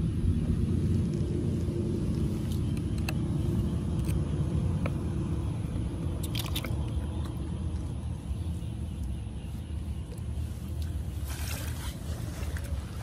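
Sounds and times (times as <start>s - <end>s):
low rumble: 0.0s - 13.0s
hands scooping water in puddle: 6.1s - 7.9s
small wet splashes: 6.2s - 7.4s.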